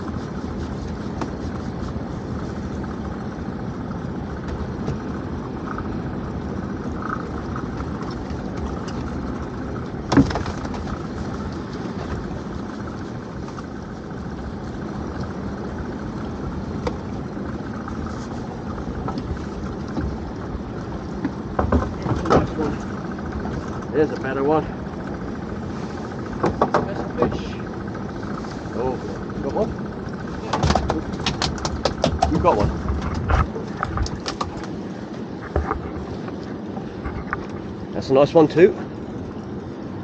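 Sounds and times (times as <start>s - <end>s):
steady low rumble: 0.0s - 40.0s.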